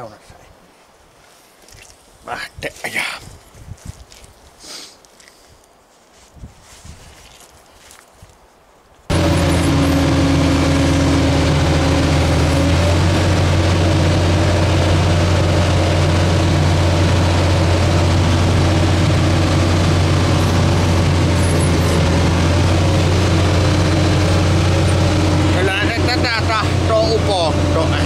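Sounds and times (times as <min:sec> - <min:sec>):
diesel engine droning in cab: 0:09.1 - 0:28.0.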